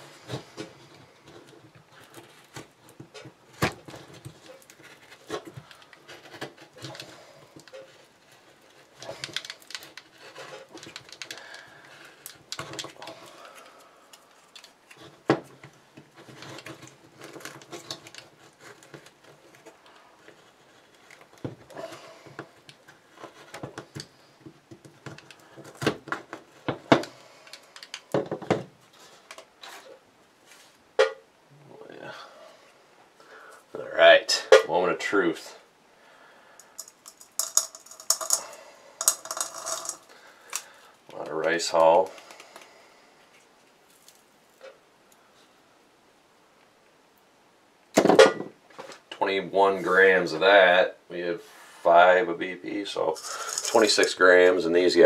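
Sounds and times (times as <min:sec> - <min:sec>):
paper and foil rustling: 0:53.1 - 0:54.5.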